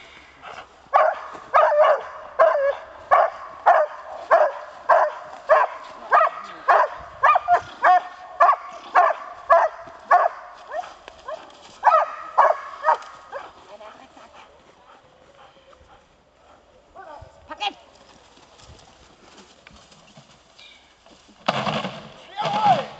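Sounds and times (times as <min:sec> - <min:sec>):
dog barking rhythmically: 0:00.9 - 0:10.9, 0:11.8 - 0:13.5.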